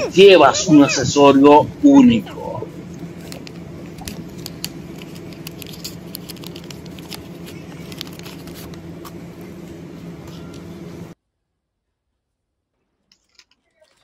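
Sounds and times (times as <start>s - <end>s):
steady low hum: 0.0s - 11.2s
banknotes crinkling: 2.7s - 10.9s, 13.1s - 14.0s.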